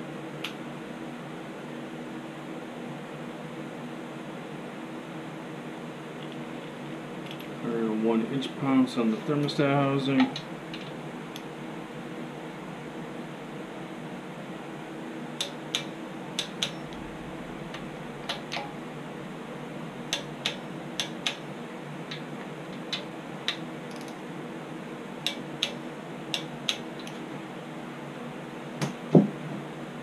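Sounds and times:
steady hum: 0:00.0 - 0:30.0
heavy knock: 0:28.8 - 0:29.4.

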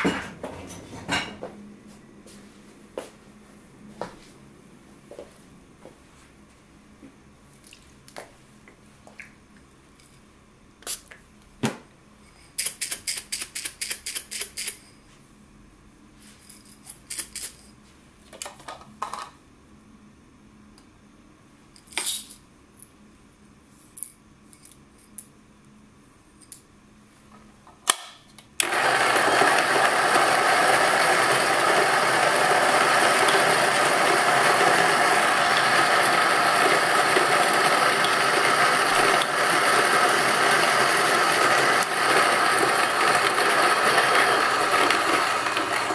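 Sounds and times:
coffee grinder whirring: 0:28.6 - 0:45.9.

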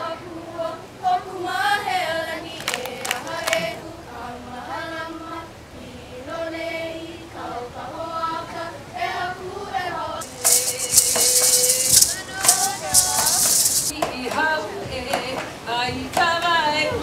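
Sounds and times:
group of voices singing: 0:00.0 - 0:17.0
sharp clicks: 0:10.2 - 0:13.9.

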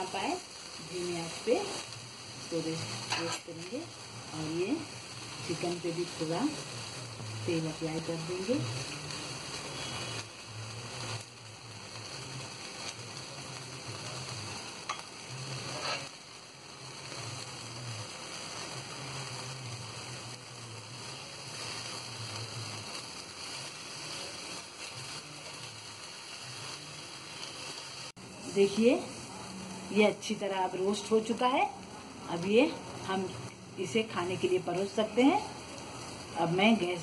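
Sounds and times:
chicken sizzling on a grill: 0:00.0 - 0:37.0
metal tongs clicking on grate: 0:14.9 - 0:15.1.

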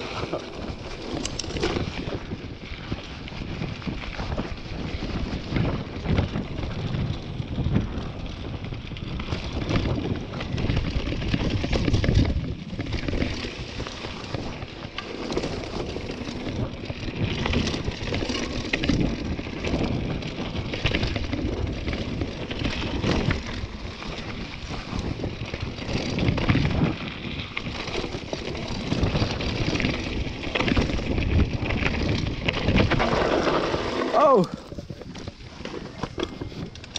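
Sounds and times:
bike knocking and rattling: 0:00.0 - 0:36.9
wind buffeting microphone: 0:00.0 - 0:36.9
tyres crunching over dirt: 0:08.6 - 0:36.9.

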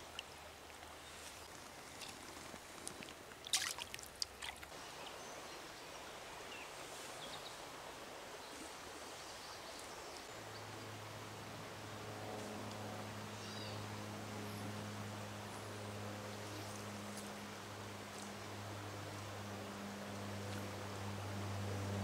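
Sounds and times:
stream flowing over riffles: 0:00.0 - 0:12.1.

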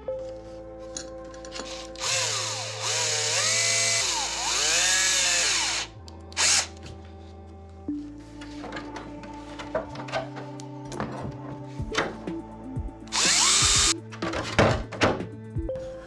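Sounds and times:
cordless drill motor whine: 0:01.6 - 0:06.7, 0:13.1 - 0:14.0.

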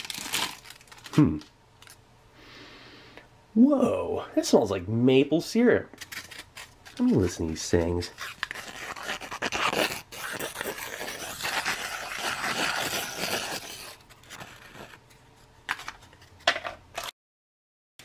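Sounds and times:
foil packets crinkling: 0:00.0 - 0:02.0, 0:06.0 - 0:15.1.

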